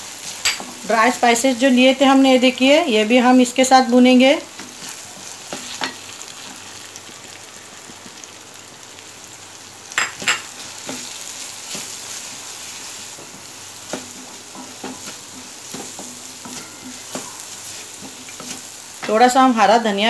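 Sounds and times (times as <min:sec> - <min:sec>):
spices sizzling in oil: 0:00.0 - 0:20.0
spatula scraping and knocking pan: 0:10.0 - 0:19.3.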